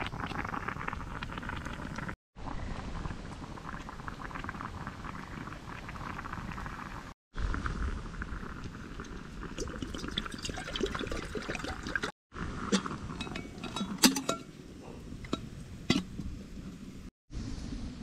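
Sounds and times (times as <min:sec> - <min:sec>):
water pouring into a kettle: 0:08.5 - 0:12.1.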